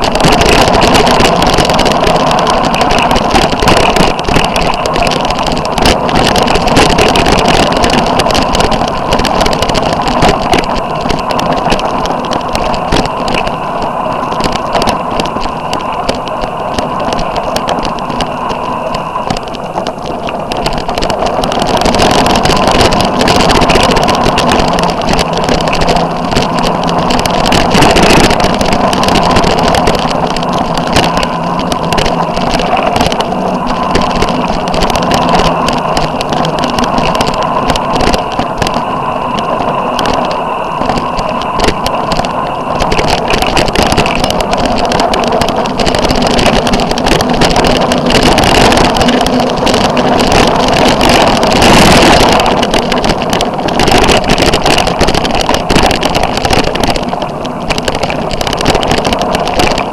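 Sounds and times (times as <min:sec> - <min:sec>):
vehicle engine running: 0:00.0 - 0:59.9.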